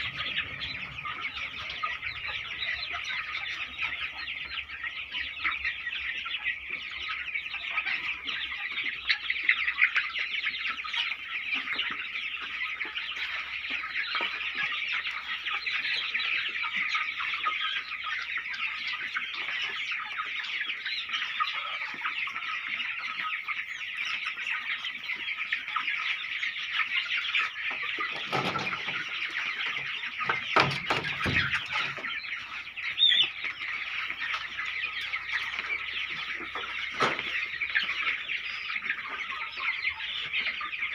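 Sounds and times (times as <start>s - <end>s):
chickens clucking: 0.0s - 40.9s.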